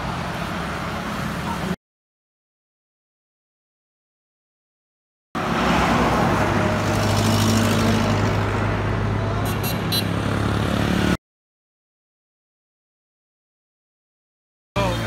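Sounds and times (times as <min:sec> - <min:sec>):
road traffic passing: 0:00.0 - 0:01.8, 0:05.4 - 0:11.2, 0:14.8 - 0:15.0.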